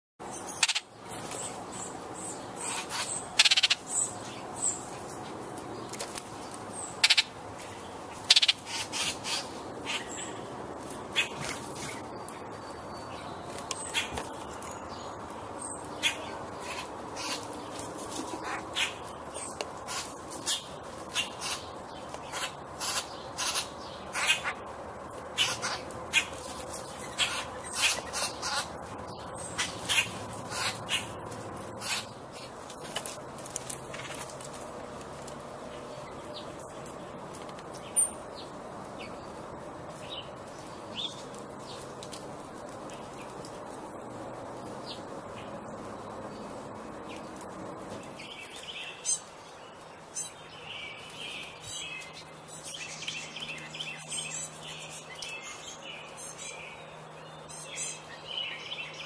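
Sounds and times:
birds giving harsh calls: 0:00.2 - 0:34.6.

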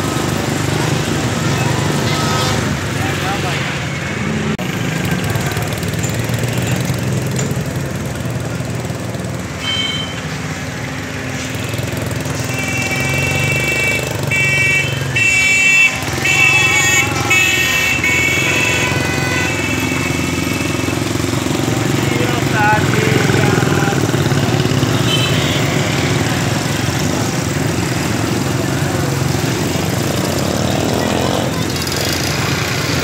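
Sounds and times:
horn beeping: 0:09.6 - 0:10.3, 0:11.6 - 0:28.6.

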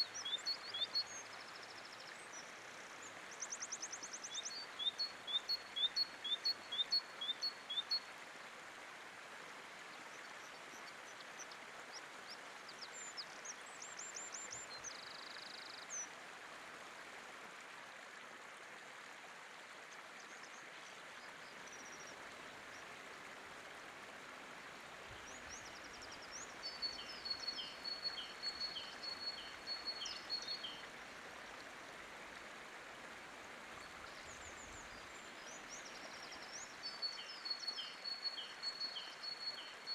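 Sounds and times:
songbirds chirping: 0:20.2 - 0:39.9.

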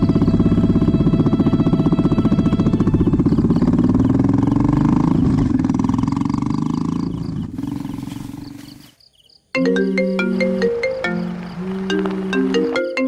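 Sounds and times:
motorbike engine pulling away: 0:00.0 - 0:08.9, 0:09.6 - 0:13.0
marimba phone ringtone: 0:09.6 - 0:13.0.

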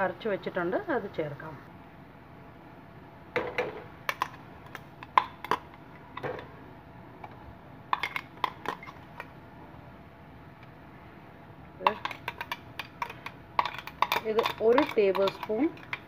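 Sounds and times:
spoon scraping: 0:11.9 - 0:16.0
spoon tapping metal bowl: 0:11.9 - 0:16.0.

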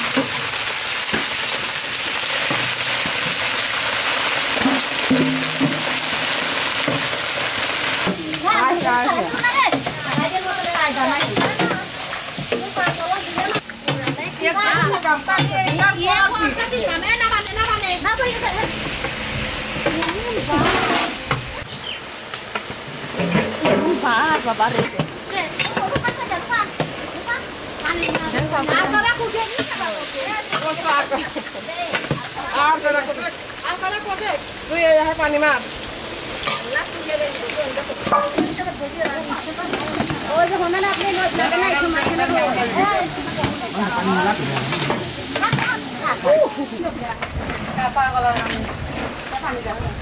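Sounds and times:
shrimp sizzling in hot oil: 0:00.0 - 0:50.0
ladle stirring in pan: 0:02.0 - 0:16.4
women's voices: 0:08.2 - 0:18.9, 0:19.8 - 0:21.2, 0:23.6 - 0:35.6, 0:36.5 - 0:50.0.

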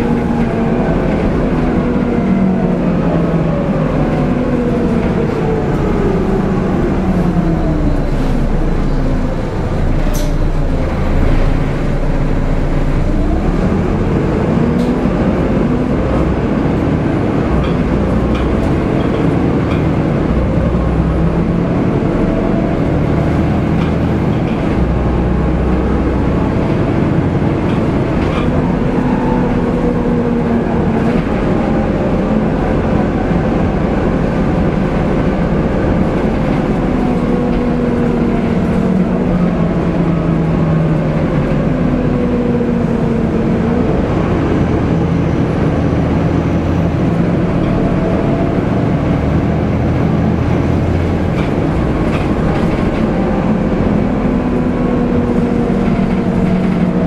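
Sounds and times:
bus diesel engine running: 0:00.0 - 0:57.0
road and body rumble: 0:00.0 - 0:57.0.

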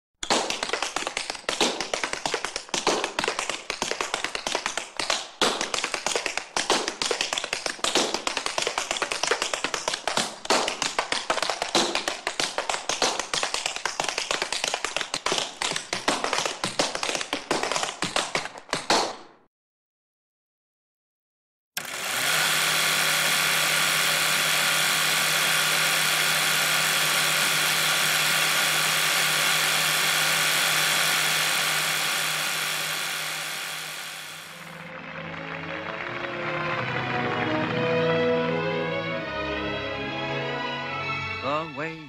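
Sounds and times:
tap shoes clicking on hard floor: 0:00.2 - 0:19.2.

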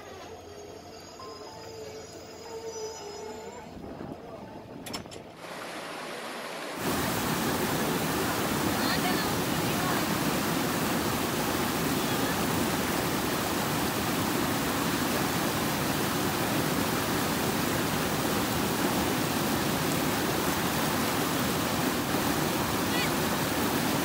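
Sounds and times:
river water rushing over boulders: 0:05.4 - 0:24.0.

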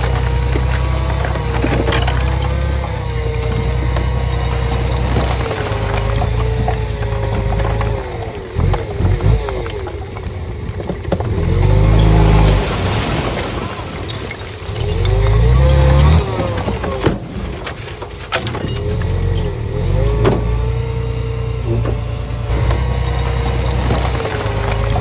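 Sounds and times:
bulldozer diesel engine revving: 0:00.0 - 0:17.6, 0:18.7 - 0:25.0
running gear squealing: 0:11.8 - 0:12.6, 0:18.6 - 0:19.9.

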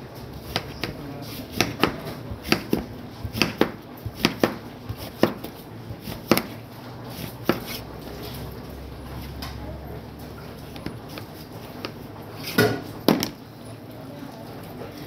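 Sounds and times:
knife chopping on cutting board: 0:00.4 - 0:07.8.

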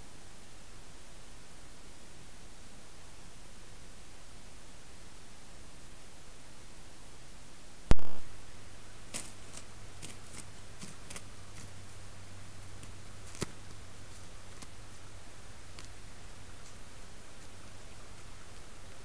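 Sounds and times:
steady low hum: 0:00.0 - 0:19.0
deer stepping on crusted snow: 0:09.1 - 0:18.3.

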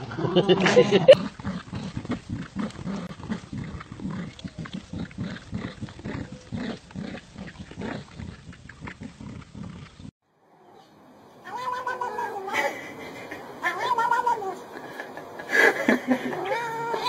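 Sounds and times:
dogs growling: 0:00.0 - 0:10.1.

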